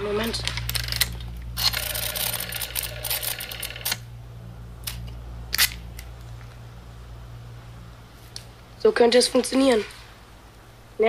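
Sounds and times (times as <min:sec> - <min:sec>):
metal gadget whirring and clicking: 0:00.3 - 0:04.0.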